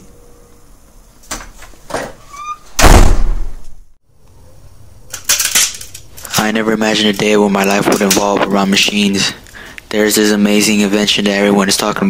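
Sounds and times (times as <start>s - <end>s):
door slamming: 1.3s - 3.8s.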